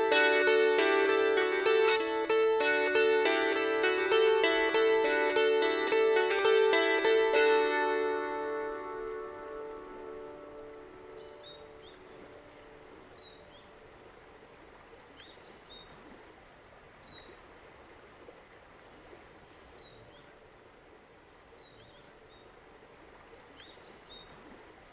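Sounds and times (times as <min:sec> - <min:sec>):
plucked kantele notes: 0:00.0 - 0:13.1
steady background hiss: 0:00.0 - 0:24.9
small birds chirping: 0:09.7 - 0:13.7.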